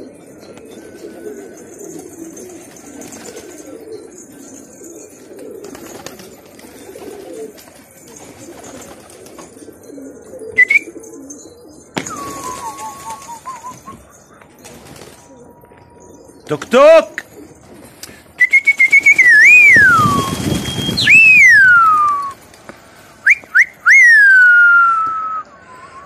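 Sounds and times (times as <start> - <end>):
pigeons cooing: 0.0 - 24.2
wavering whistle: 10.6 - 11.0, 12.0 - 14.0, 18.4 - 22.4, 23.2 - 26.0
sharp rising squeak: 19.4 - 22.3.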